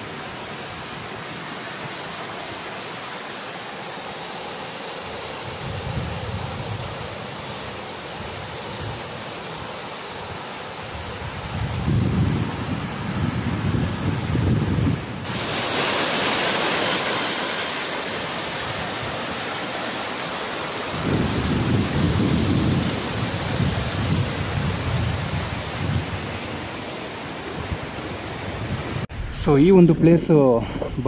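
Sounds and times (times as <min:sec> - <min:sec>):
waterfall rushing: 0:00.0 - 0:29.3
wind buffeting microphone: 0:05.4 - 0:09.2, 0:10.3 - 0:15.8, 0:20.9 - 0:31.0.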